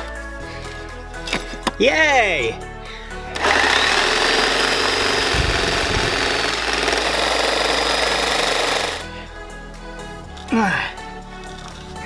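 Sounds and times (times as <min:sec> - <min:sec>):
background music: 0:00.0 - 0:12.0
electric grinder on steel: 0:03.3 - 0:09.1.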